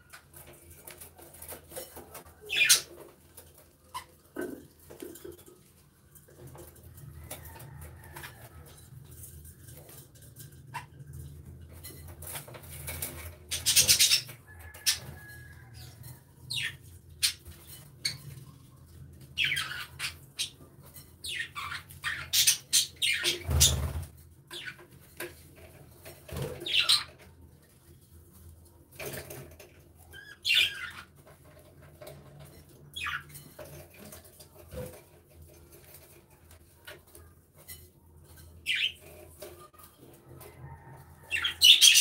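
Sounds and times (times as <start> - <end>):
budgerigars chirping and squawking: 2.5 - 3.0, 13.5 - 15.1, 19.4 - 20.6, 21.2 - 24.0, 26.6 - 27.1, 30.2 - 31.1, 38.6 - 39.2, 41.3 - 42.0
wings flapping: 23.2 - 24.1.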